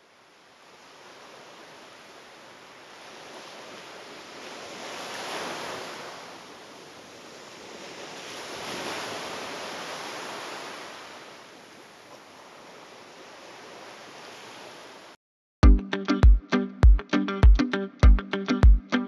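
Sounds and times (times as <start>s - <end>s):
waves washing onto shore: 0.0s - 15.2s.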